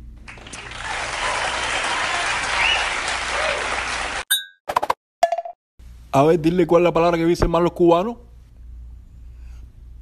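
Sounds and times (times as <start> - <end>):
audience applauding: 0.3 - 4.2.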